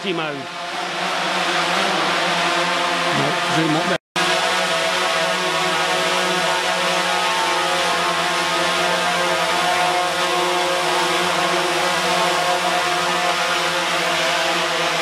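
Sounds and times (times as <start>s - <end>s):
drone propellers whining: 0.0s - 15.0s.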